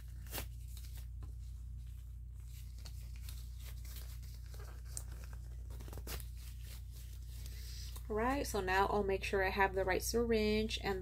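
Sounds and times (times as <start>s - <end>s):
gloves rustling and crinkling: 0.0s - 8.7s
low electrical hum: 0.0s - 11.0s.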